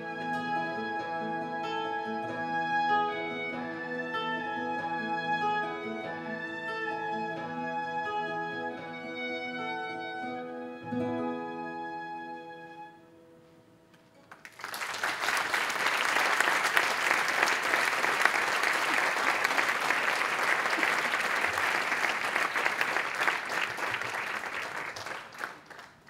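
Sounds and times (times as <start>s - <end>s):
audience applause: 14.2s - 26.0s.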